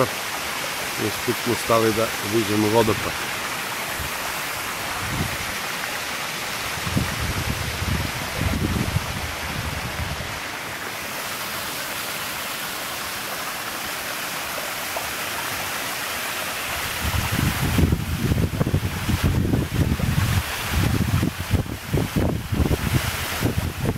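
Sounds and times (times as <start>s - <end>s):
waterfall rushing: 0.0s - 23.9s
wind buffeting microphone: 3.9s - 5.6s, 6.6s - 10.4s, 16.7s - 23.9s.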